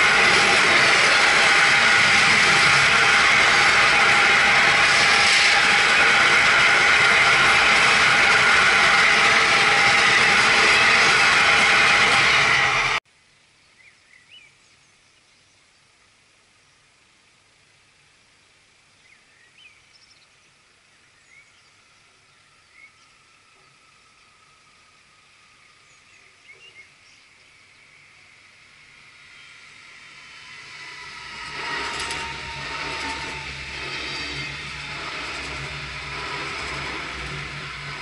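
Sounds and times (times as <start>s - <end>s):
train passing on rails: 0.0s - 13.0s, 21.1s - 38.0s.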